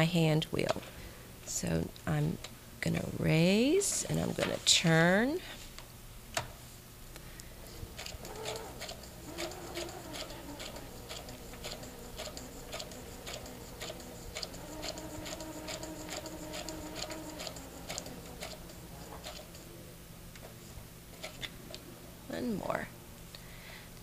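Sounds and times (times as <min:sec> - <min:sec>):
faint motor whine: 0:00.0 - 0:24.0
sewing machine needle clicks: 0:08.0 - 0:19.6.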